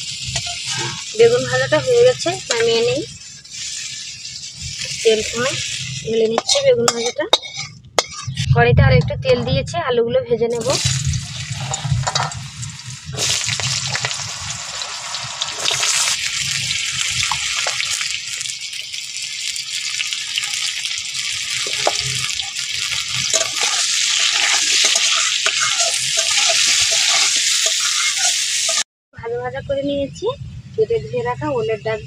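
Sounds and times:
potatoes sizzling in hot oil: 0.0 - 8.4, 10.6 - 28.8
metal spatula scraping pan: 0.3 - 8.5, 10.6 - 14.3, 21.4 - 28.8.

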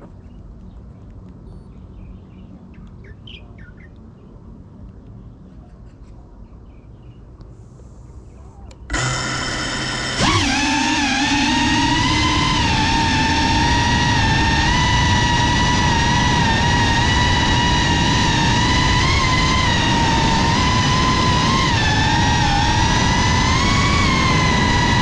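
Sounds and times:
drone motors whining: 8.7 - 25.0.

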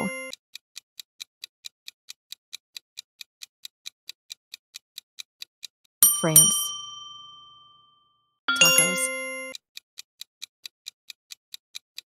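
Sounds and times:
countdown timer ticking: 0.0 - 0.4, 6.0 - 7.6, 8.5 - 9.6.

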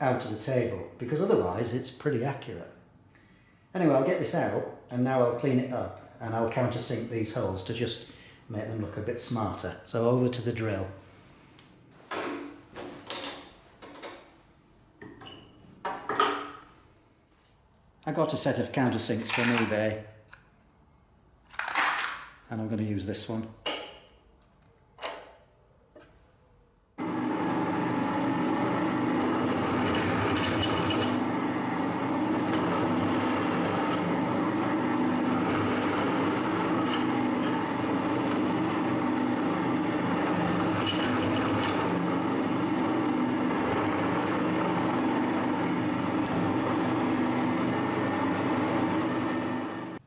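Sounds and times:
pillar drill cutting steel: 27.0 - 50.0.

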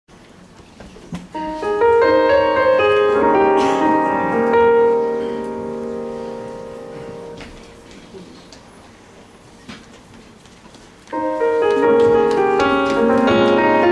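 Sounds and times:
piano chord: 1.4 - 8.3, 11.2 - 13.9.

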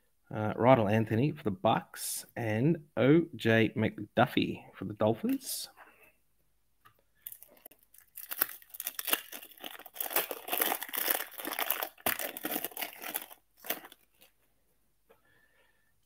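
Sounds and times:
foil wrapper crinkling: 7.2 - 14.4.

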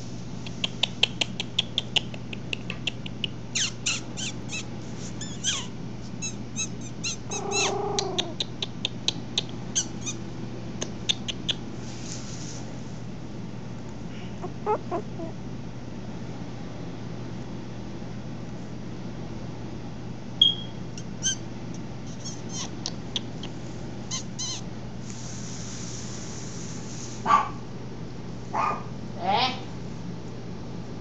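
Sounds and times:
puppies squeaking and whimpering: 3.0 - 8.6, 9.8 - 10.2, 14.4 - 15.4, 21.0 - 21.4, 22.1 - 24.6
puppy whine: 3.5 - 8.7, 14.2 - 15.4, 22.0 - 23.0, 24.1 - 24.6.

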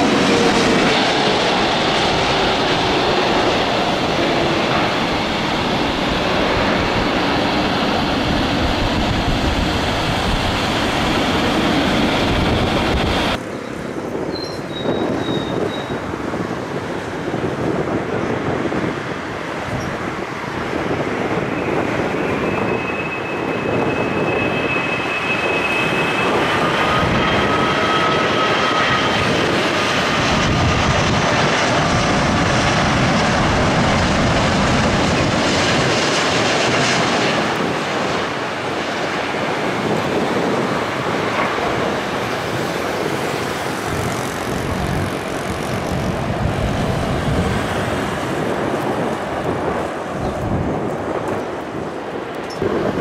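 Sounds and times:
jet airliner landing roar: 0.0 - 53.0
jet engine whine: 0.0 - 53.0.

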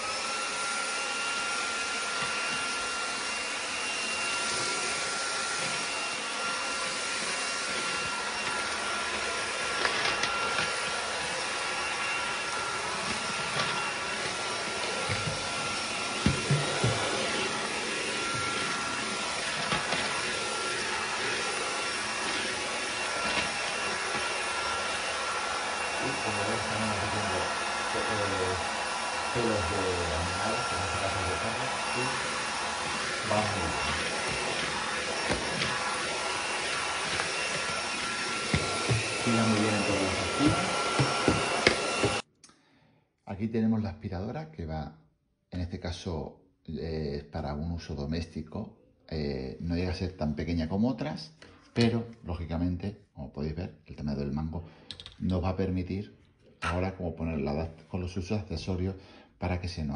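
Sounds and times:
vacuum cleaner motor whine: 0.0 - 42.3.

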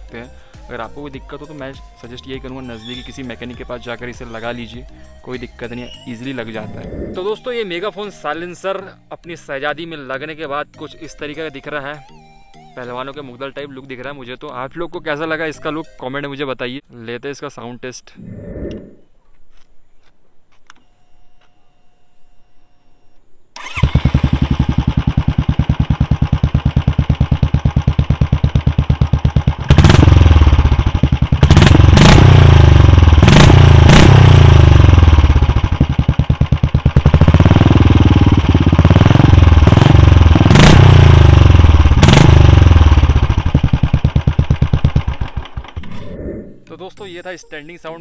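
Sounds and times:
motorcycle engine idling and revving: 23.6 - 45.9.

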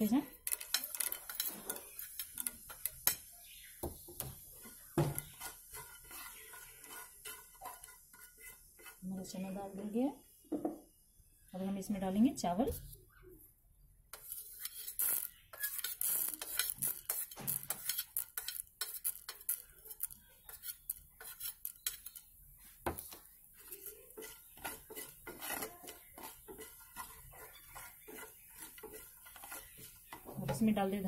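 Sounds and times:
wooden spatula scraping frying pan: 0.4 - 3.2, 4.2 - 10.0, 14.1 - 31.0.

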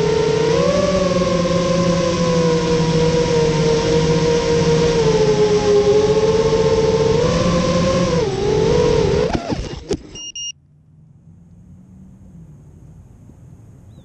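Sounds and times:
wind noise: 0.0 - 10.1
quadcopter motors whining: 0.0 - 10.4
short high electronic beep: 10.1 - 10.6.

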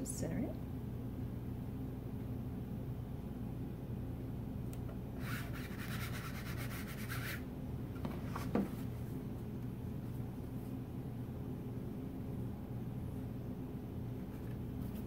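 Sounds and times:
hand rubbing stencil on wood: 5.2 - 7.4.

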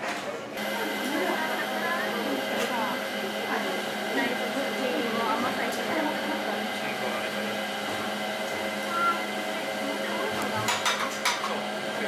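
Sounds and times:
machine hum: 0.6 - 12.0
brief high tone: 8.9 - 9.3.

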